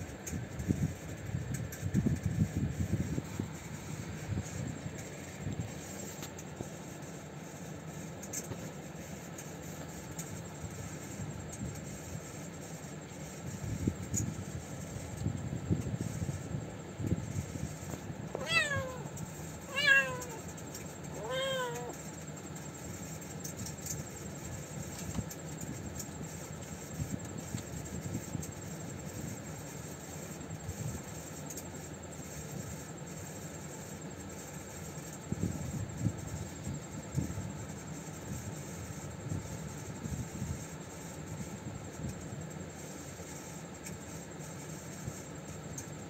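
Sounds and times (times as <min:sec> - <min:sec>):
low background hum: 0:00.0 - 0:46.0
cat meowing: 0:18.3 - 0:20.4, 0:21.1 - 0:22.0.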